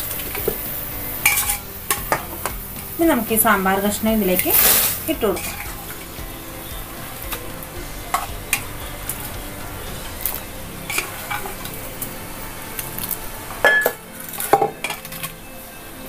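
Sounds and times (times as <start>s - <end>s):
ladle scraping metal pot: 0.0s - 15.4s.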